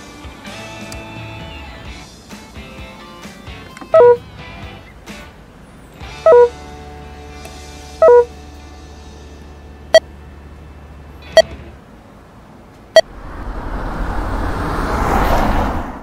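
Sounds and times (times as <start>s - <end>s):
short electronic beep: 4.0s - 4.2s, 6.3s - 6.5s, 8.0s - 8.3s
rushing noise: 13.0s - 16.0s.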